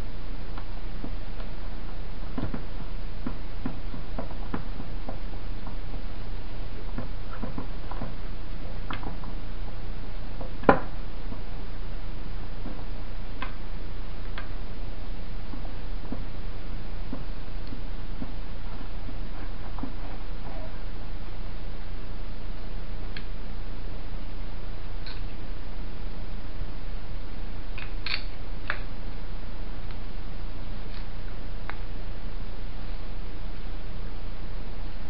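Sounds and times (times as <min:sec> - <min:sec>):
steady low hum: 0:00.0 - 0:35.0
clicks of small parts handled: 0:27.8 - 0:28.8.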